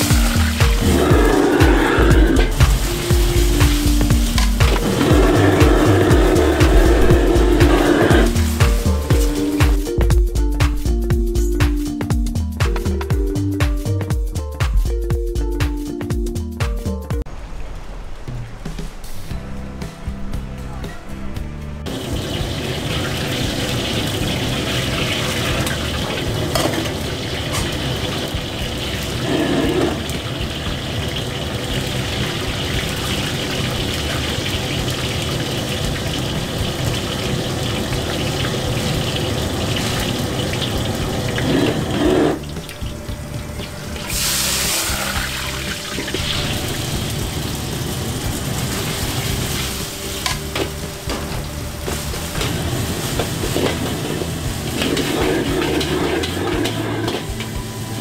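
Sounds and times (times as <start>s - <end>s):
gas burner roaring: 0.0s - 9.8s, 21.4s - 58.0s
water running from tap: 0.0s - 9.9s, 21.9s - 58.0s
hot oil sizzling in wok: 0.0s - 10.0s, 21.9s - 58.0s
metal ladle scraping wok: 41.3s - 42.6s, 49.4s - 58.0s.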